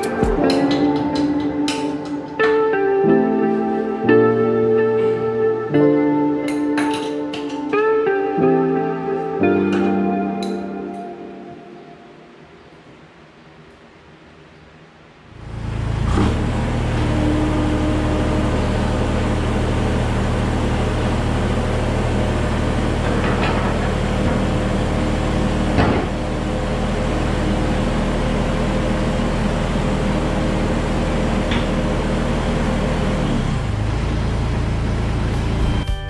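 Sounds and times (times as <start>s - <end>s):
diesel engine running: 15.4s - 36.0s.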